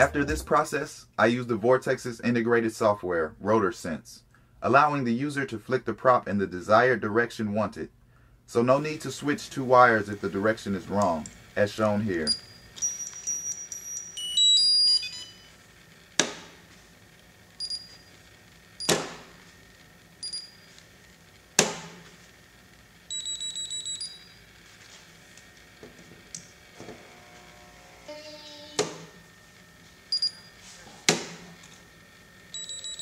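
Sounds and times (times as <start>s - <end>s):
short high motor beeps: 12.2s - 15.6s, 17.6s - 18.2s, 20.2s - 20.8s, 23.1s - 24.6s, 30.1s - 30.6s, 32.5s - 33.0s.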